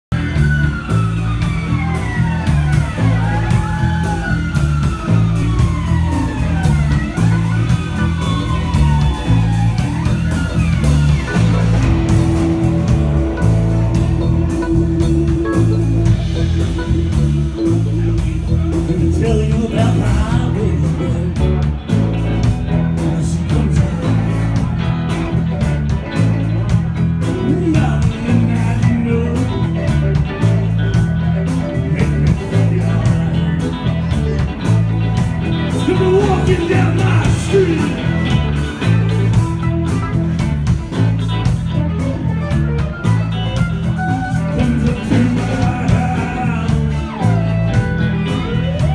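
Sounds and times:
bass line: 0.0s - 48.9s
electric guitar: 0.1s - 48.9s
steady drum beat: 0.1s - 48.9s
person singing: 11.8s - 39.3s, 44.0s - 48.9s.

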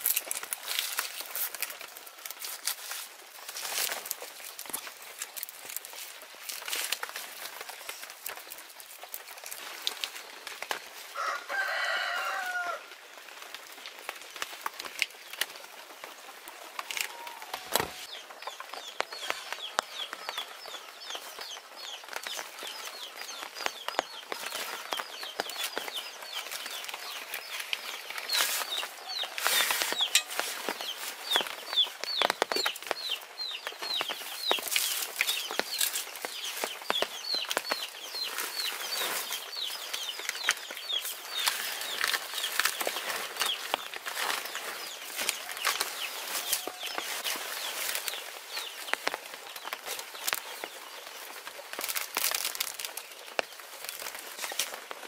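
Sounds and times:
chickens peeping: 15.2s - 55.0s
clicks and rustling: 23.5s - 33.0s.

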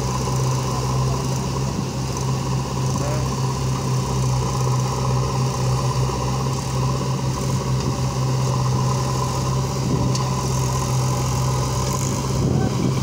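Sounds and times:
diesel engines humming: 0.0s - 13.0s.

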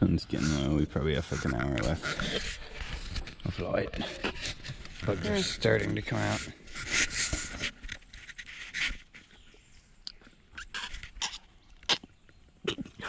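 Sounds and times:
kiss lip smacks: 10.0s - 12.1s.

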